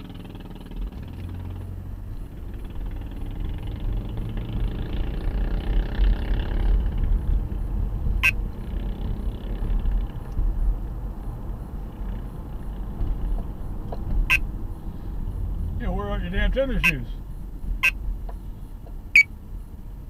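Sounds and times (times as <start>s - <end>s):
car engine and road rumble: 0.0s - 20.0s.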